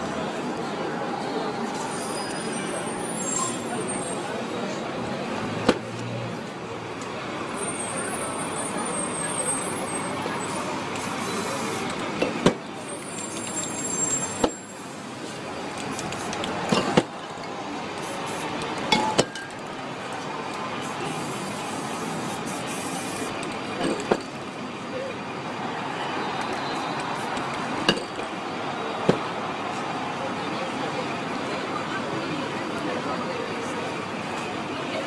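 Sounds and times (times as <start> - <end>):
street traffic noise: 0.0 - 35.0
aerosol spray paint hissing: 11.0 - 11.9, 20.8 - 23.4.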